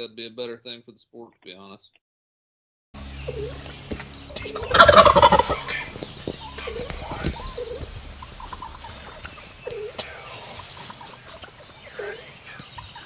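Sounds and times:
turkey gobbling: 3.3 - 13.0.

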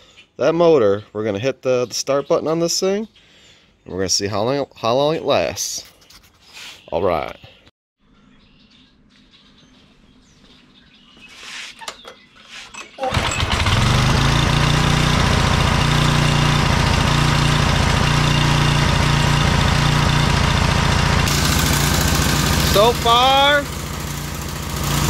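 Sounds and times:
pressure washer engine pull-started: 13.0 - 25.0.

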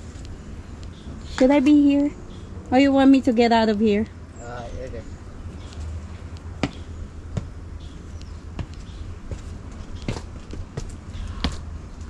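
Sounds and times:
footsteps on a dirt path: 7.4 - 12.0.

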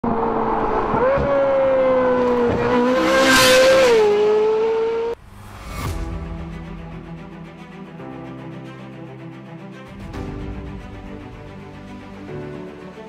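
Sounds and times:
rushing swell: 5.1 - 8.8
quiet music: 5.2 - 13.0.

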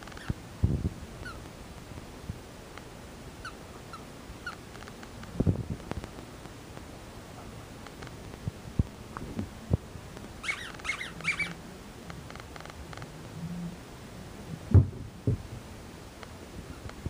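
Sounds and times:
puppy whining: 10.4 - 11.6.

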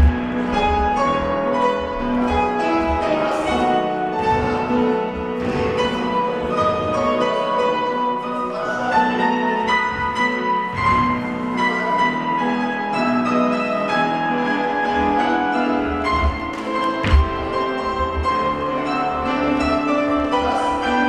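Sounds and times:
grand piano playing: 0.0 - 21.0
feet thudding on floor: 16.1 - 18.4.

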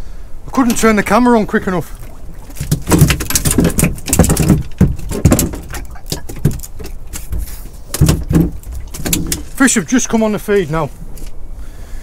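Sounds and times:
fishing tackle clicks and rustling: 2.4 - 9.6.

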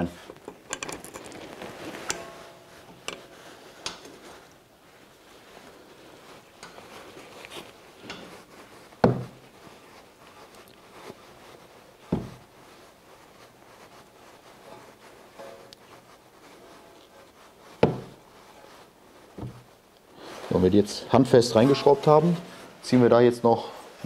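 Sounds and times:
clicks of metal fitting turning: 0.3 - 1.4
dull knocks: 9.0 - 9.4, 17.8 - 18.2.

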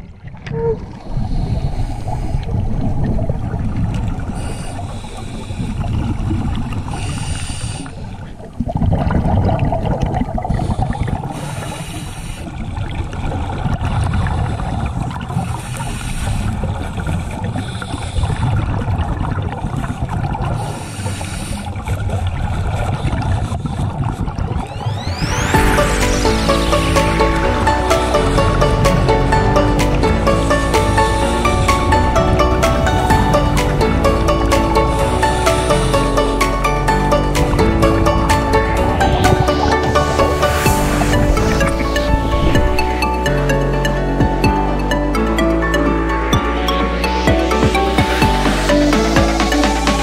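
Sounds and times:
underwater low rumble: 0.0 - 49.9
regulator exhaust bubbles hissing: 24.4 - 50.0.

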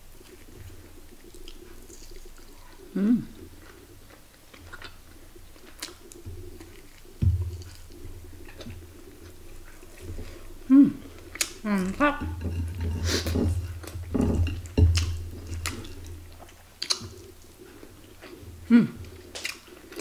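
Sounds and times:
voice humming: 2.9 - 3.4, 10.7 - 11.0, 11.6 - 12.4, 18.7 - 19.0
low thump: 7.2 - 8.0
chewing and biting meat: 13.2 - 18.4.

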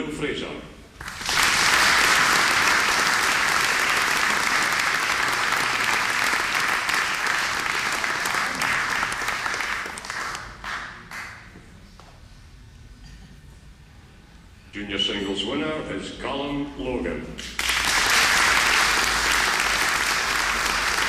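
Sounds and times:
audience applauding: 1.0 - 11.4, 17.6 - 21.0.

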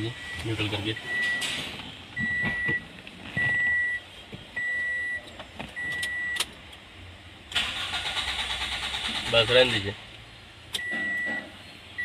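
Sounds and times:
car warning chime beeping: 0.0 - 1.5, 2.1 - 6.5, 10.7 - 12.0.

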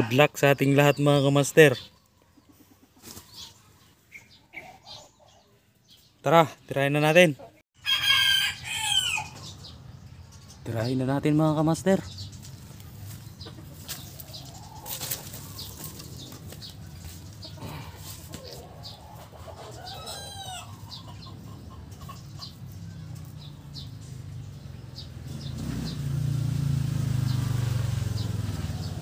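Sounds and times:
chickens clucking: 0.0 - 7.6, 11.4 - 25.8.

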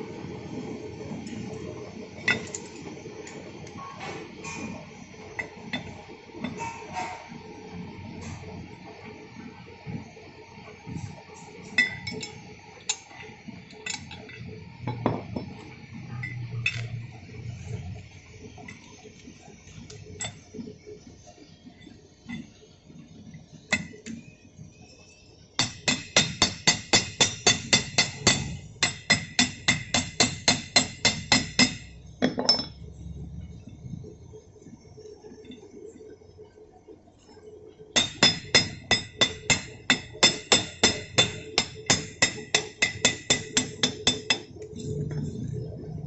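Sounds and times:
steel parts clinking and knocking: 2.2 - 2.8.

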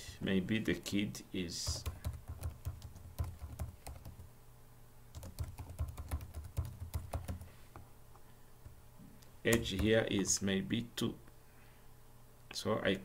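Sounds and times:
typing on computer keyboard: 1.6 - 4.3, 5.1 - 7.5, 9.5 - 10.0.

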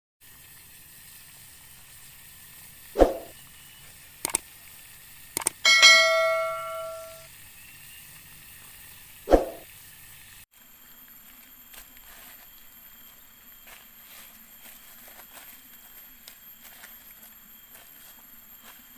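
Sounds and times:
quick double clicks: 5.4 - 5.6
notification bell ding: 5.6 - 7.2.

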